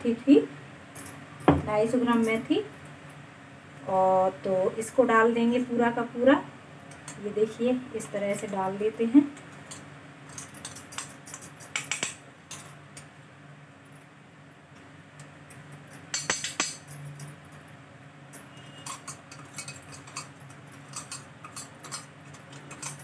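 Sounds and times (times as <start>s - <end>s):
low steady hum: 0.0s - 23.0s
spoon clinking on steel bowls: 9.6s - 13.1s, 15.5s - 17.4s, 18.4s - 23.0s
glass bangles jingling: 9.7s - 12.8s, 15.5s - 17.8s, 18.4s - 23.0s.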